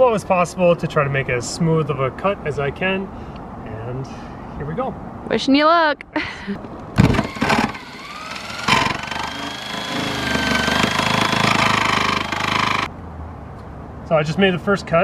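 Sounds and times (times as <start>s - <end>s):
jigsaw cutting sheet steel: 7.0s - 12.9s.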